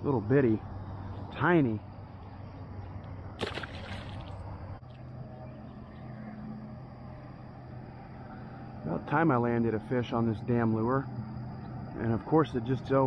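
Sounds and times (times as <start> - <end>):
low outdoor background noise: 0.0 - 13.0
water splash: 3.4 - 4.5.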